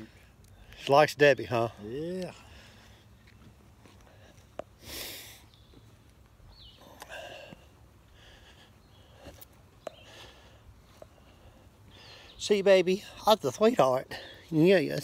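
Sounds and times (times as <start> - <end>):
sharp sniff: 4.8 - 5.5.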